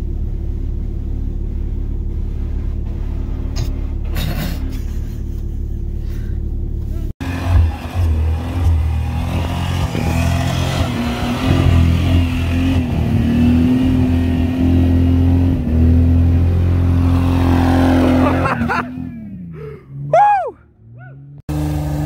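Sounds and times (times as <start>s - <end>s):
engine at high revs under load: 7.2s - 19.5s, 21.5s - 22.0s.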